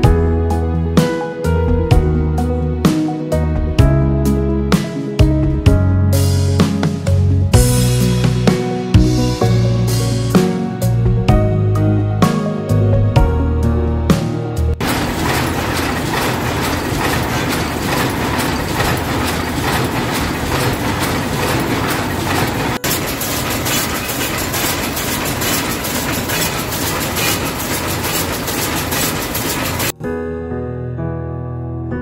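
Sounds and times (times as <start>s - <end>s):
lace machine clattering: 14.8s - 29.9s.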